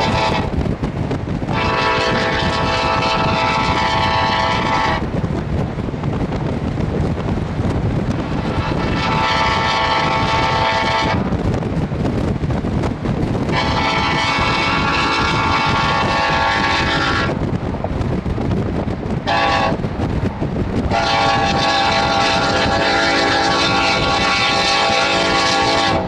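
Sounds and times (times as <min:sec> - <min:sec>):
locomotive air horn blasts: 0:00.0 - 0:00.5, 0:01.5 - 0:05.1, 0:08.3 - 0:11.3, 0:13.5 - 0:17.4, 0:19.2 - 0:19.8, 0:20.9 - 0:26.0
steady low rumble: 0:00.0 - 0:26.0.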